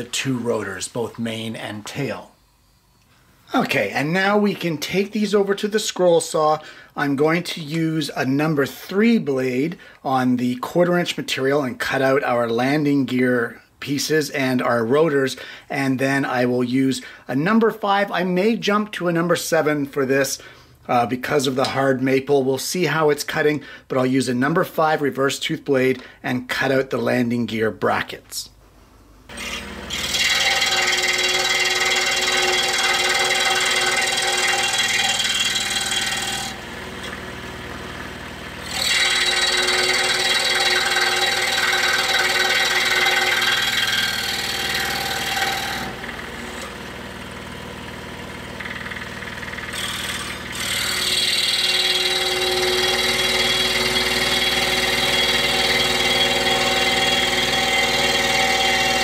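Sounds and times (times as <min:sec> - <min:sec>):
scroll saw cutting wood: 0:29.3 - 0:59.0.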